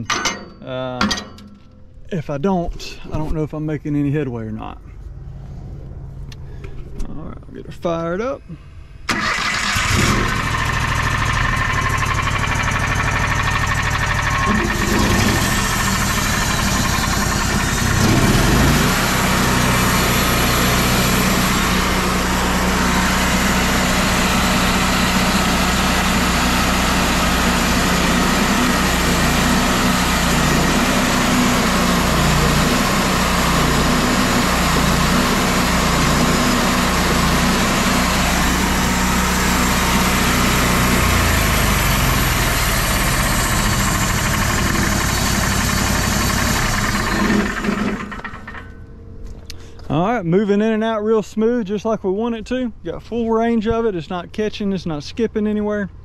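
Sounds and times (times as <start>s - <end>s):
sawmill engine running: 7.4s - 49.9s.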